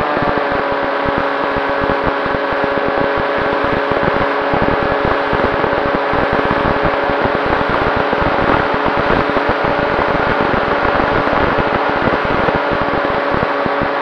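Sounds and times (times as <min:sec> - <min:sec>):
wind buffeting microphone: 0:00.0 - 0:14.0.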